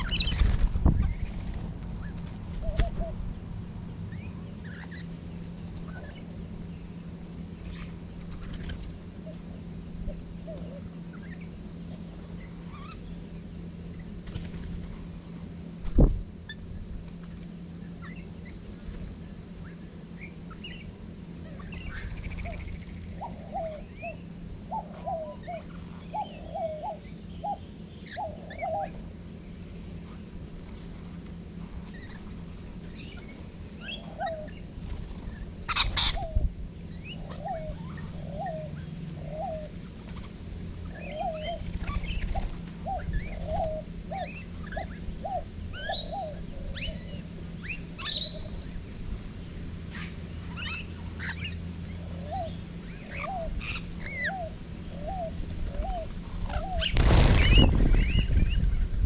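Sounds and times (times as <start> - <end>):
birds calling: 0.0 - 59.0.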